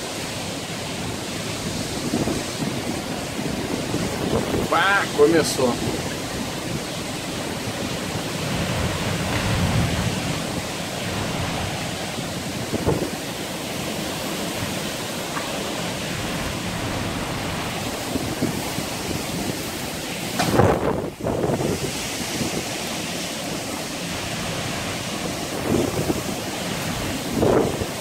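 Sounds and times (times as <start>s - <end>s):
heavy rain and strong wind: 0.0s - 28.0s.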